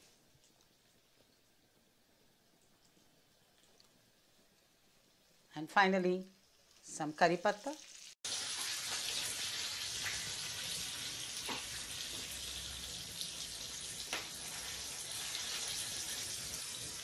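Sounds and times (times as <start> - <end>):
spices sizzling in hot oil: 5.9 - 17.0.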